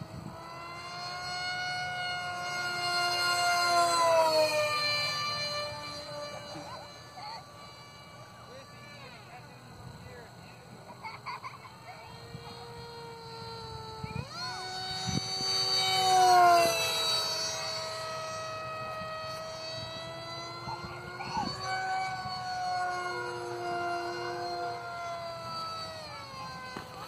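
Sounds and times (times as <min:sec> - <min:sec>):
model jet motor whine flying by: 0:00.0 - 0:27.0.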